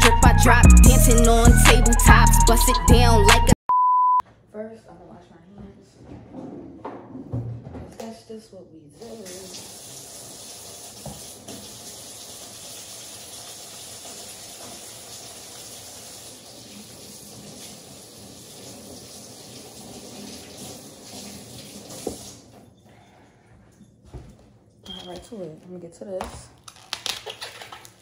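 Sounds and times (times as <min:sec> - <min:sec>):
faucet water running into sink: 0:09.0 - 0:22.6.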